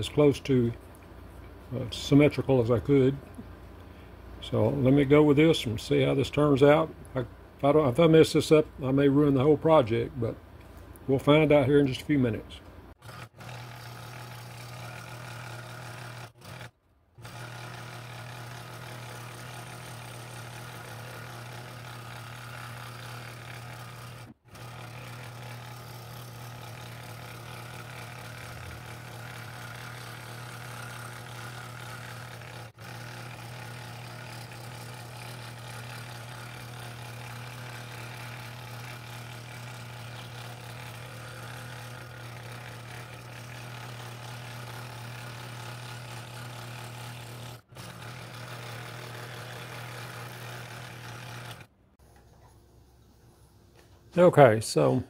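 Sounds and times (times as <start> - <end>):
scroll saw motor hum: 12.6 - 51.8
saw blade cutting wood: 13.0 - 51.7.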